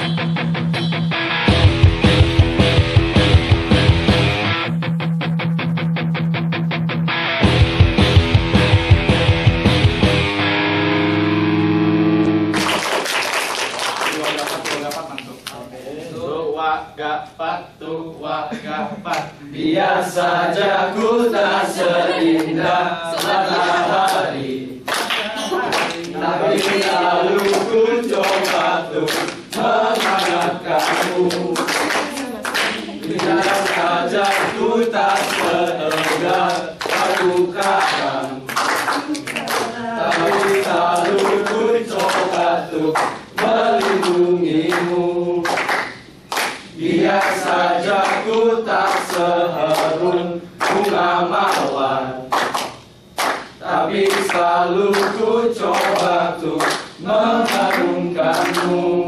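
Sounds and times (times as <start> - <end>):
hand clapping: 12.2 - 15.6, 23.1 - 23.4, 24.9 - 50.0, 50.6 - 58.8
men singing without instruments: 17.0 - 38.5, 39.8 - 45.6, 46.8 - 52.3, 53.6 - 59.0.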